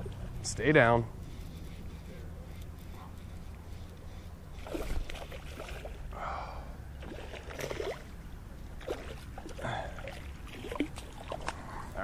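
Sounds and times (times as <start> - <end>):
fish splashing in water: 4.6 - 6.1, 7.0 - 11.7.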